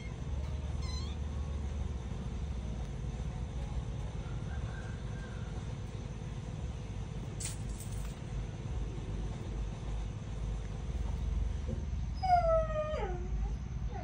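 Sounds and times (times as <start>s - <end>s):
low background rumble: 0.0s - 14.0s
cat meowing: 0.8s - 1.2s.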